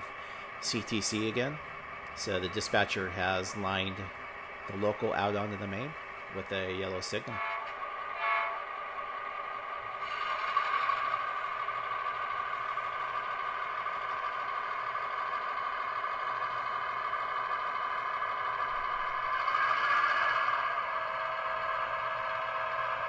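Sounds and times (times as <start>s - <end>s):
model train running on track: 0.0s - 23.0s.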